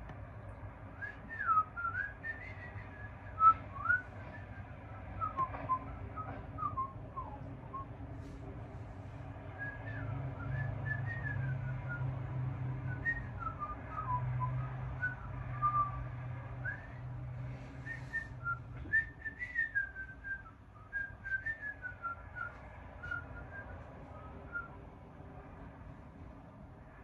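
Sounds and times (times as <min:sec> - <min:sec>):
low steady hum: 0:00.0 - 0:27.0
person whistling a tune: 0:17.9 - 0:24.7.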